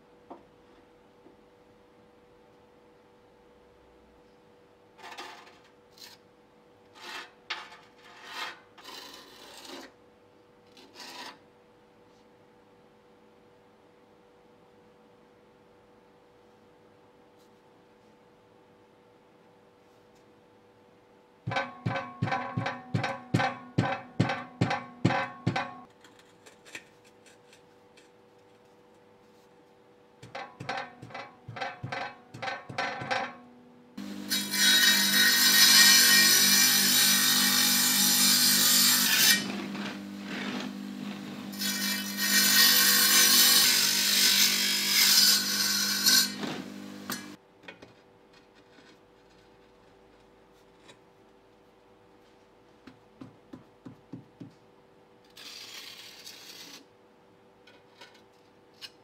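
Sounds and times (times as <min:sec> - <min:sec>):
tile saw cutting brick: 0:07.0 - 0:10.0, 0:34.0 - 0:47.4, 0:55.3 - 0:56.9.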